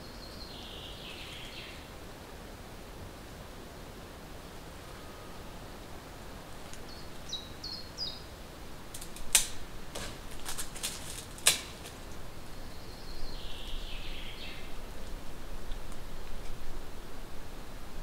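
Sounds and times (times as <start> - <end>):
branches clicking and snapping: 8.9 - 12.2.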